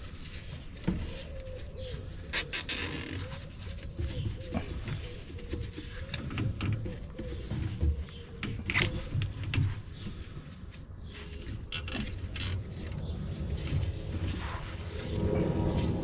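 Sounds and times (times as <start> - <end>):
low rumble: 13.0 - 16.0.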